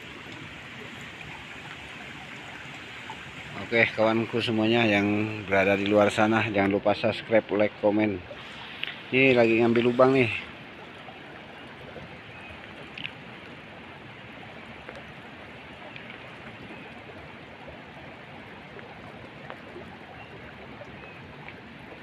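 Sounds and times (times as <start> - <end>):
small stream running: 0.0 - 22.0
faint ticks: 12.6 - 13.5.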